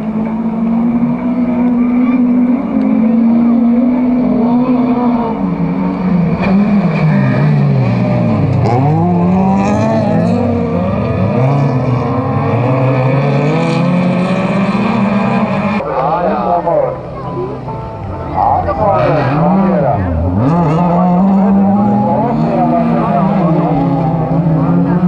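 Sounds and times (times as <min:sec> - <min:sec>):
car engines revving: 0:00.0 - 0:25.0
cars passing by: 0:00.0 - 0:25.0.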